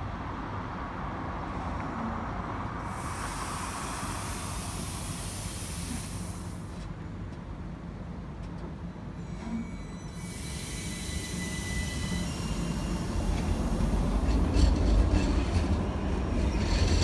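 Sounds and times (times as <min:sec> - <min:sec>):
tram loud hiss: 0:02.8 - 0:07.0, 0:09.5 - 0:17.0.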